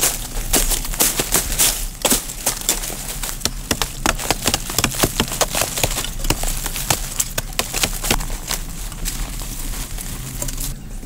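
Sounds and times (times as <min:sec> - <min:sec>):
tool knocking into hard earth: 0:03.4 - 0:08.3.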